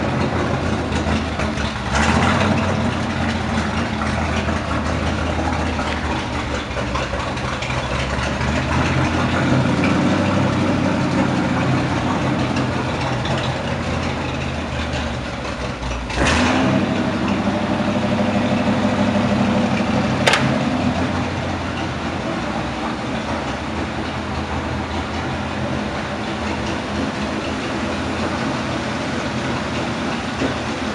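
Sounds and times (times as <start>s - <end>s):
truck engine idling: 0.0s - 30.9s
sharp click: 20.2s - 20.6s.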